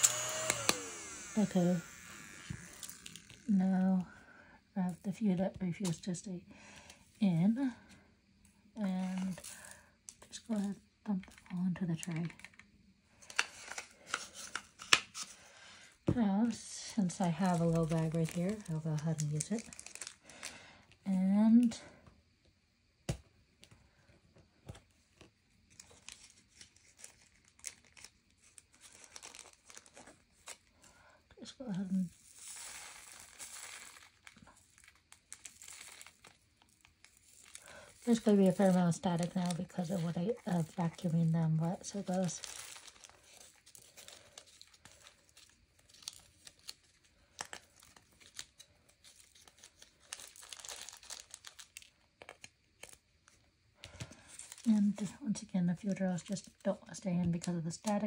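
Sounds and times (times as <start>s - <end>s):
plastic bag crinkling: 0.0s - 3.6s, 16.6s - 20.7s, 25.7s - 30.7s, 31.7s - 53.0s, 53.9s - 55.2s.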